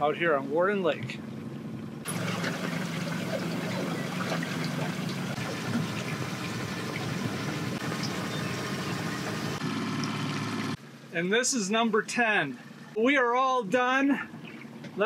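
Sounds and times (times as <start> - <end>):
boat motor hum: 0.7 - 11.1
water splashing against hull: 2.1 - 10.7.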